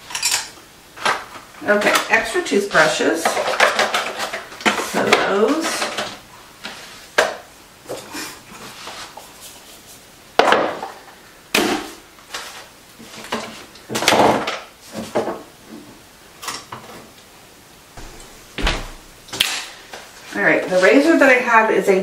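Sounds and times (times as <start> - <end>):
plastic items clattering: 0.0 - 6.2.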